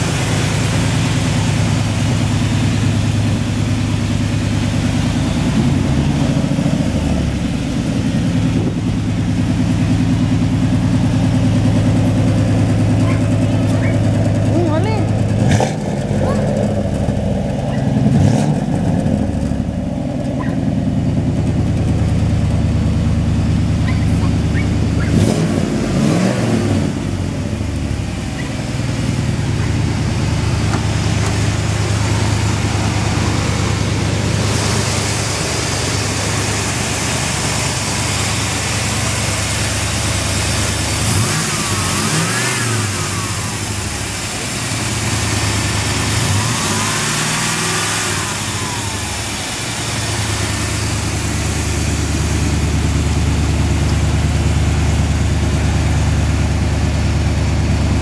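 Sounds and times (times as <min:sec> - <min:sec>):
pickup truck engine idling and revving: 0:00.0 - 0:58.0.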